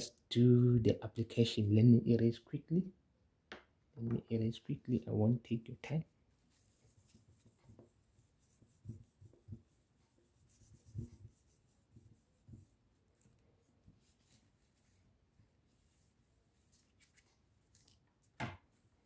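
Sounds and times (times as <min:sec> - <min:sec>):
tissue rubbing on plastic sheet: 0:06.2 - 0:17.9.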